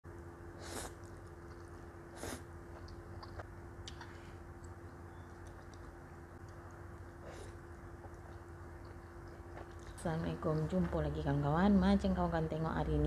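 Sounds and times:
steady low hum: 0:00.0 - 0:13.0
chewing with wet mouth clicks: 0:00.9 - 0:10.8.

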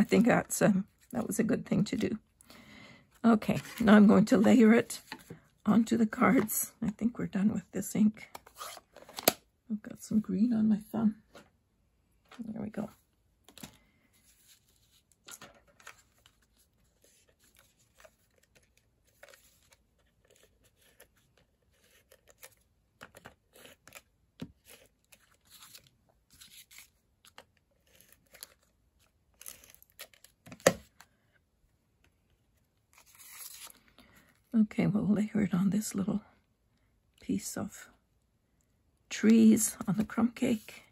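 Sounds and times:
cardstock rustling and crackling: 0:13.4 - 0:31.1.

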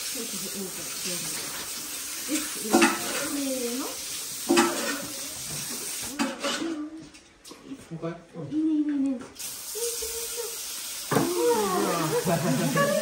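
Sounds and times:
steady hiss: 0:09.4 - 0:13.0.

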